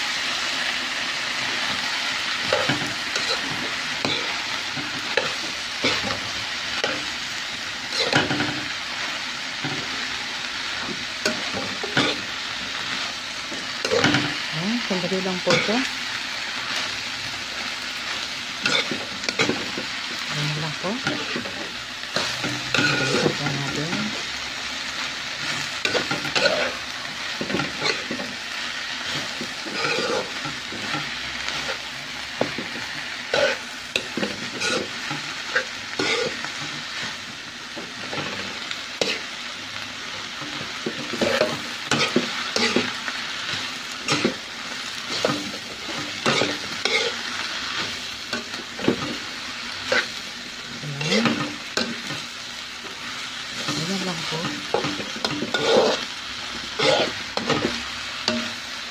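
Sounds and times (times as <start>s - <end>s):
cabbage sizzling in a pan: 0.0s - 58.9s
spatula scraping and knocking pan: 13.5s - 14.5s, 21.0s - 24.2s, 29.0s - 31.8s, 32.4s - 37.2s, 40.3s - 49.2s, 50.9s - 58.6s.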